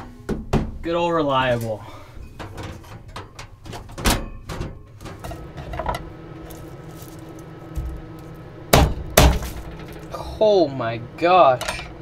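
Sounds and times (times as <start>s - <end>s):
heater humming: 0.0s - 12.0s.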